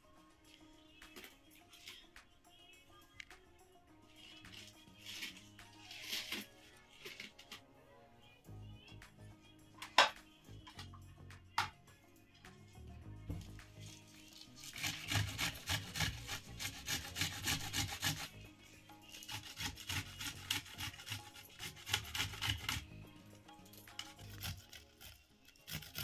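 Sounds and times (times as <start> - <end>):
knife cutting vegetables on board: 4.5 - 7.6, 14.4 - 18.4, 19.1 - 22.9, 23.9 - 26.0.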